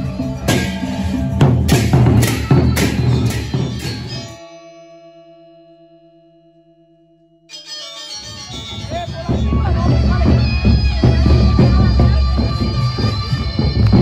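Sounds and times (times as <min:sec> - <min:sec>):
large barrel drums: 0:00.0 - 0:04.3, 0:08.8 - 0:14.0
cymbals clashing: 0:00.0 - 0:04.8.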